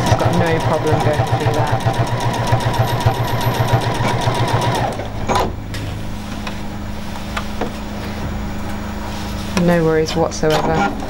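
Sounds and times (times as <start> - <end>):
sewing machine stitching: 0.0 - 5.5.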